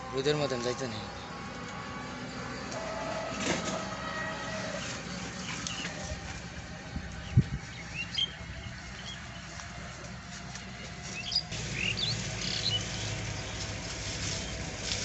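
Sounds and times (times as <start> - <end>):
small birds chirping: 4.8 - 6.0, 7.2 - 9.6, 11.0 - 14.7
steady low rumble: 4.9 - 15.0.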